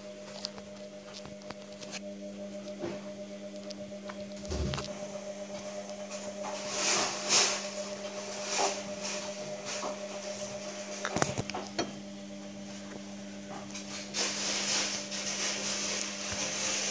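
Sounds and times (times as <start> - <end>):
low electrical hum: 0.0 - 16.9.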